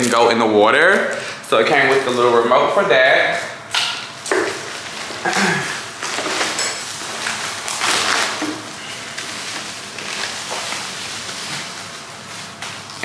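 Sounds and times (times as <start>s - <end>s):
packaging rustling and crinkling: 4.3s - 13.0s.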